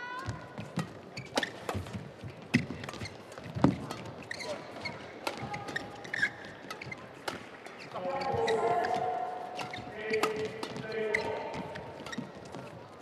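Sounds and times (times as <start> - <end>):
badminton racket hitting shuttlecock: 0.7 - 7.9, 8.8 - 12.8
shoe squeaks on court floor: 1.2 - 1.8, 3.8 - 7.1, 7.7 - 12.6.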